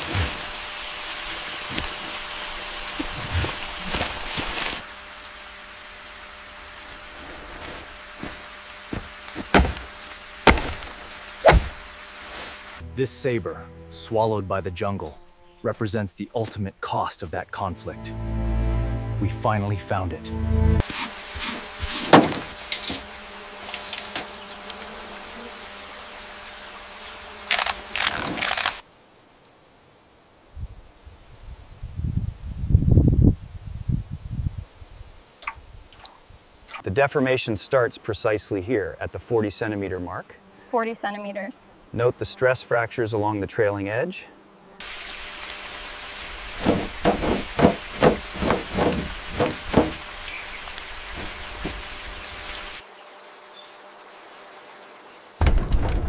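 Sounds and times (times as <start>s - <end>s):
hard knocks: 9.0s - 11.8s, 46.6s - 50.0s
background hiss: 20.8s - 55.5s
camera shutter clicking: 27.5s - 28.8s.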